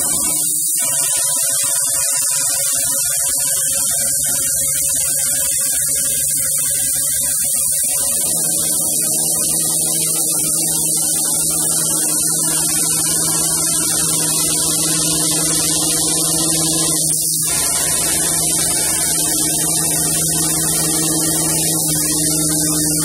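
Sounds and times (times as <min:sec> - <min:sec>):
spindle high-pitched whine: 0:00.0 - 0:23.0
low hum: 0:08.0 - 0:23.0.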